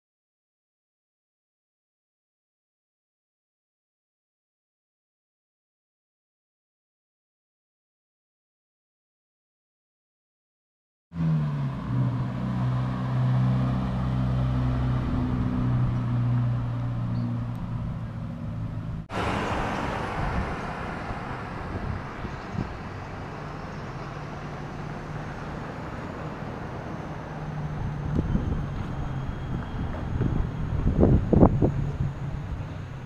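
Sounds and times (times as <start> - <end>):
faint traffic: 11.2 - 33.0
vehicle engine droning: 11.2 - 33.0
wind rumbling on microphone: 14.4 - 33.0.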